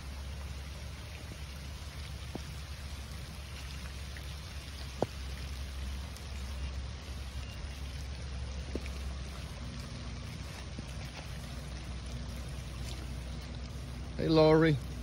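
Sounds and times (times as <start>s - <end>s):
low rumble: 0.0s - 15.0s
rain falling: 0.0s - 15.0s
drip taps: 2.2s - 2.8s, 3.6s - 6.5s, 8.6s - 10.0s.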